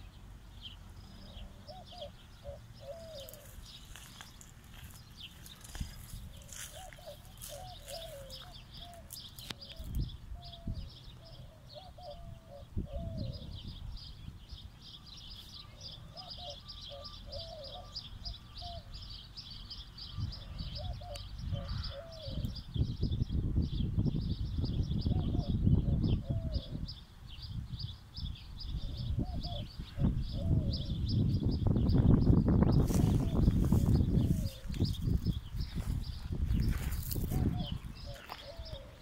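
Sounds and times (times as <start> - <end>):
dove cooing: 1.0 - 13.8, 15.6 - 19.0, 20.2 - 22.7, 25.0 - 27.0, 28.8 - 31.2, 32.8 - 39.0
high-pitched bird chirping: 1.1 - 27.0, 28.2 - 39.0.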